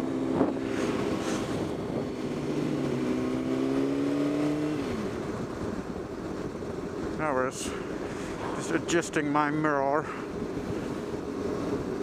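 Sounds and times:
motorcycle engine running: 0.0 - 9.6
wind rushing past microphone: 0.0 - 12.0.

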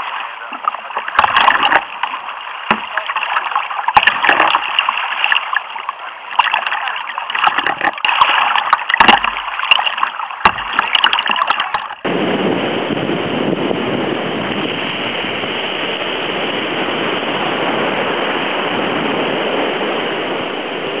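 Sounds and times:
breaking surf and foaming water: 0.0 - 21.0
choppy water splashing against kayak: 0.0 - 21.0.

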